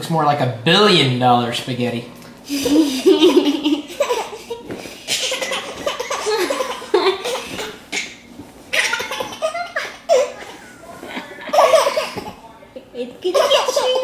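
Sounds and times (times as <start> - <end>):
baby laughing: 2.5 - 12.4, 13.3 - 14.0.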